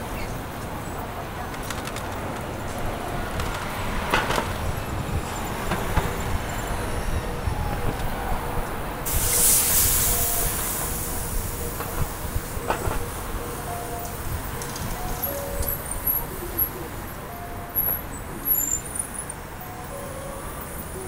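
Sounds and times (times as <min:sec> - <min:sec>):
city street traffic rumble: 0:00.0 - 0:21.0
loud hiss: 0:09.1 - 0:12.5.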